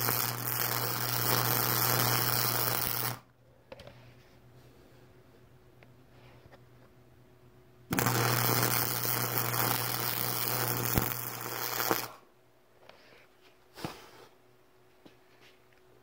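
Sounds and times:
welding arc crackling and hissing: 0.0s - 3.2s, 7.9s - 12.2s.

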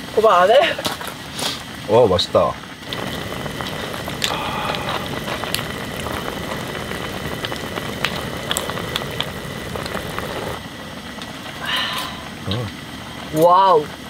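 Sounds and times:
soup bubbling at a simmer: 2.8s - 13.2s.

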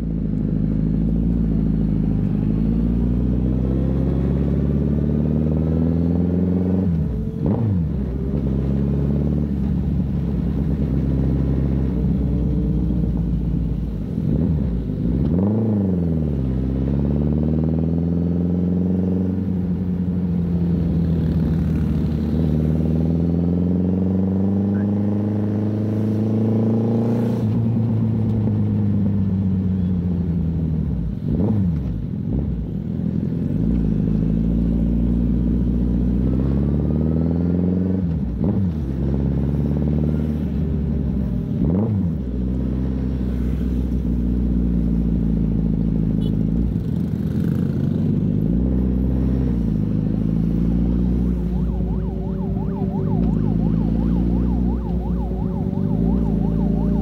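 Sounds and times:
motorcycle engine revving: 41.6s - 57.0s.

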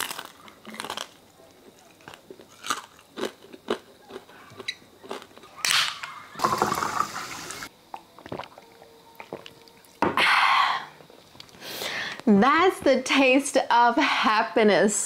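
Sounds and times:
crunchy chewing: 0.0s - 6.2s
sparkling water pouring into glass: 6.4s - 7.7s.

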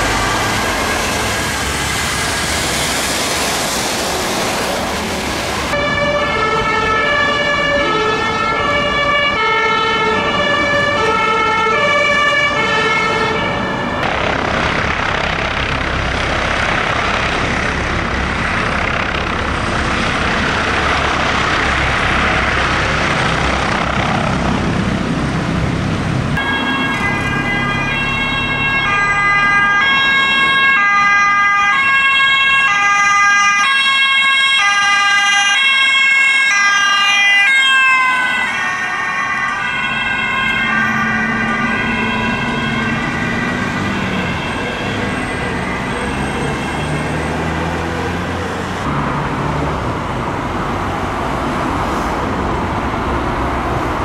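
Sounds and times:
ambulance two-tone siren: 0.0s - 3.1s, 5.7s - 14.0s, 26.4s - 48.6s
helicopter rotor and turbine: 0.0s - 5.8s, 14.0s - 28.6s, 38.8s - 54.0s.

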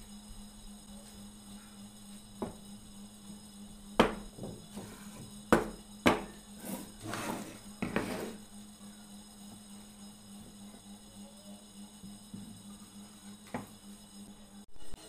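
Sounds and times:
wooden knocks on tabletop: 2.4s - 2.6s, 4.0s - 4.9s, 5.5s - 6.3s
board scraping across table: 4.7s - 5.3s, 6.6s - 8.4s.

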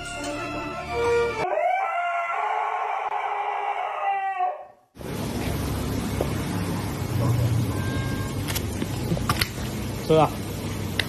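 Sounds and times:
background music: 0.0s - 1.5s
dog howling: 1.4s - 4.8s.

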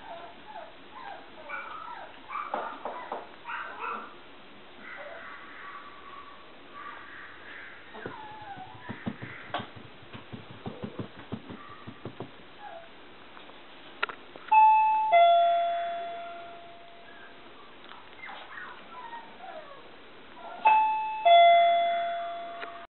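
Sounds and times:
two-tone doorbell chime: 14.5s - 17.3s, 20.6s - 22.9s.

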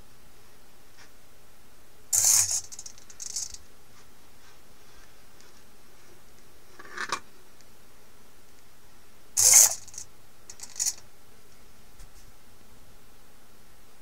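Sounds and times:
servo motor gears whirring: 2.2s - 3.6s, 9.4s - 11.0s.

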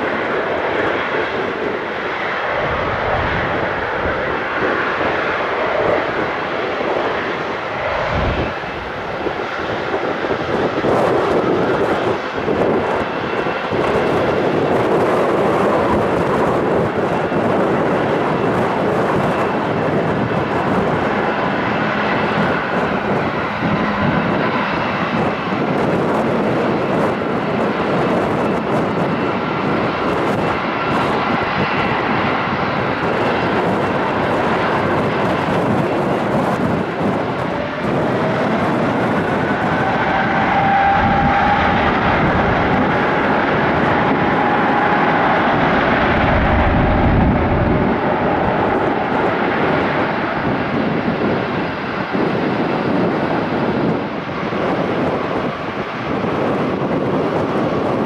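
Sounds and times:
jet engines at takeoff power: 0.0s - 58.0s.

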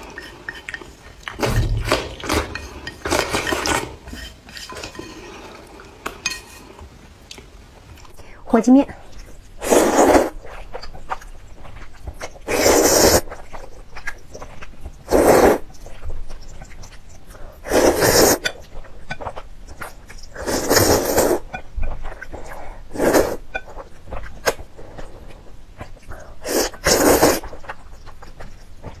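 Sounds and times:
person slurping noodles: 9.6s - 10.5s, 12.4s - 13.2s, 15.1s - 15.7s, 17.6s - 18.5s, 20.3s - 21.5s, 22.4s - 23.4s, 26.4s - 27.6s.

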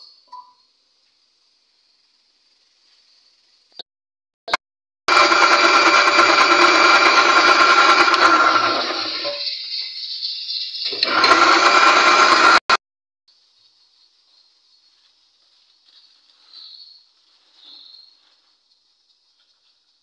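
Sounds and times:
electric blender running: 5.1s - 9.4s, 10.9s - 12.8s.

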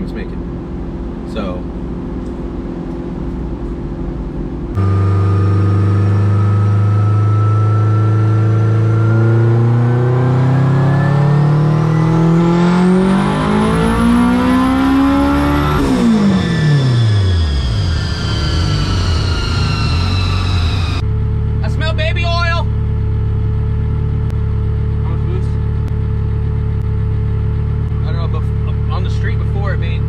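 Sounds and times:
car engine revving: 0.0s - 30.0s
faint high whine: 15.7s - 22.7s.

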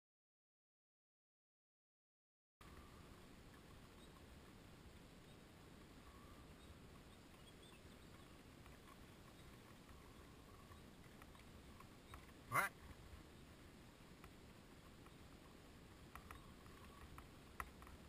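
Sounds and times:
faint high chirps: 2.6s - 4.3s, 5.1s - 8.5s, 9.2s - 11.1s, 16.1s - 17.2s
faint low rumble: 2.6s - 18.0s.

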